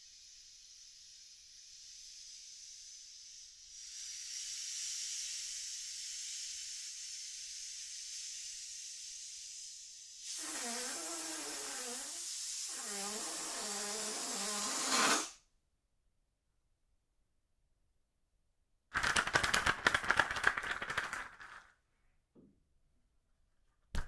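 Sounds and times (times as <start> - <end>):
air hissing from balloon: 0.0 - 15.4
balloon neck squealing: 10.3 - 15.4.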